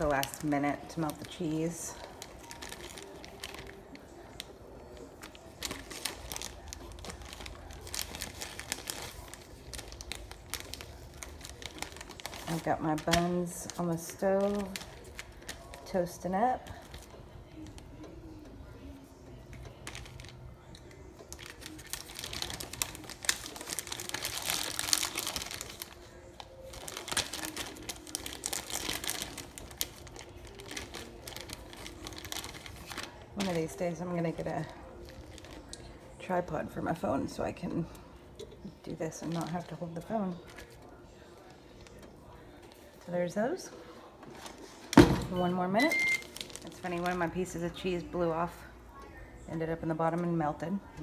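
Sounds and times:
cheese slices crinkling: 0.0 - 18.1, 19.4 - 33.8, 34.6 - 36.3, 38.6 - 43.0, 46.2 - 47.8.

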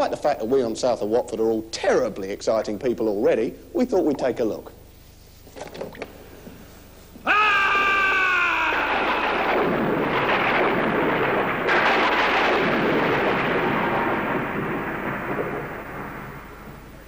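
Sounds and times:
shrill cry falling in pitch: 7.2 - 9.5
rolling thunder: 7.6 - 17.0.

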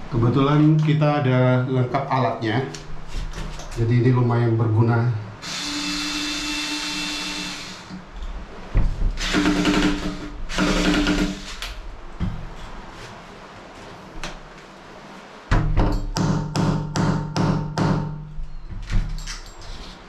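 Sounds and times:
power drill running: 5.4 - 8.0, 9.2 - 11.5.

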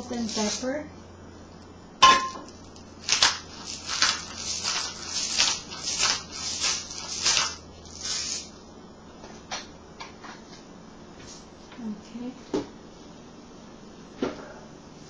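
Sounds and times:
pepper mill grinding: 0.0 - 0.7, 2.5 - 8.5.

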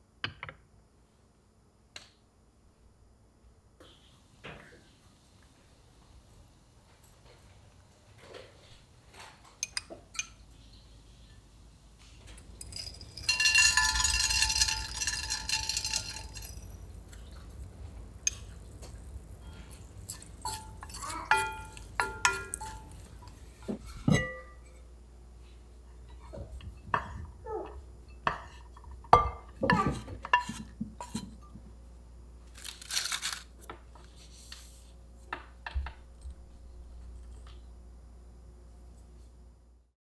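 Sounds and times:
spoons and dishes clattering: 12.3 - 17.4, 18.3 - 24.8
ceramic dishes clinking: 12.4 - 17.4, 19.5 - 24.8, 28.1 - 31.3.

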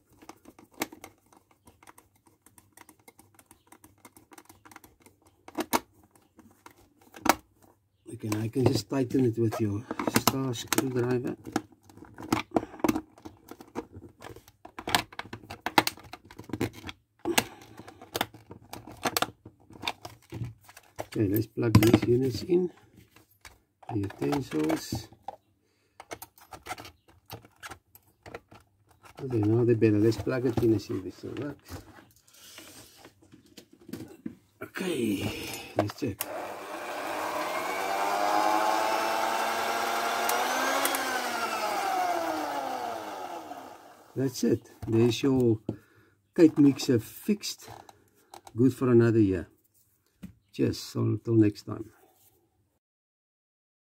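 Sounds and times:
hand mixer motor whining: 35.3 - 44.2
screwdriver tightening screws: 35.4 - 44.0.

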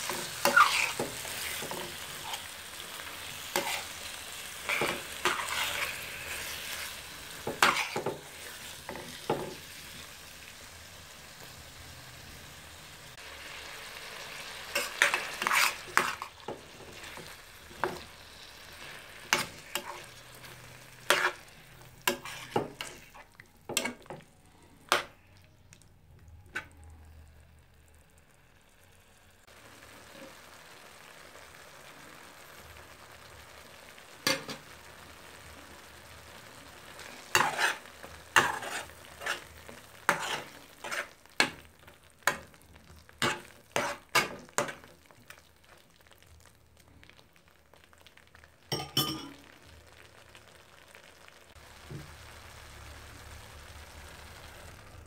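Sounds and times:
low sizzle: 0.0 - 55.0
spoon scraping metal pot: 0.1 - 2.4, 4.6 - 6.9, 7.5 - 8.2, 14.8 - 16.3, 22.0 - 24.1, 37.3 - 39.5, 40.1 - 41.2, 43.2 - 44.7.

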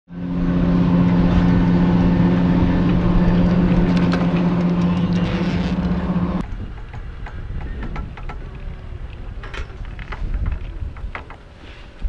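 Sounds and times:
chairlift machinery humming: 0.1 - 6.4.

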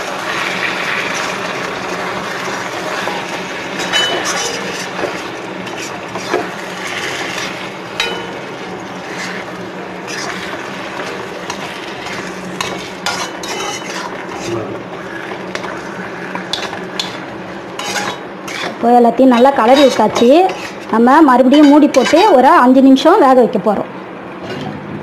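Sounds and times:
steady hiss of cooking: 0.0 - 24.4
metal spatula scraping pan: 3.8 - 8.3, 10.1 - 22.5.

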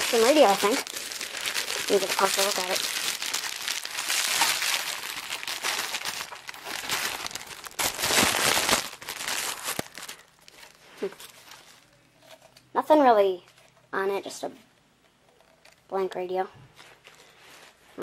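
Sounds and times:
bubble wrap crinkling: 0.0 - 12.7, 16.7 - 18.0.

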